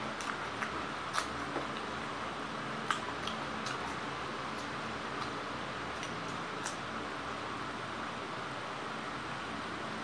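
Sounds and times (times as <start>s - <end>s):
person chewing food: 0.0s - 2.1s, 2.8s - 6.8s.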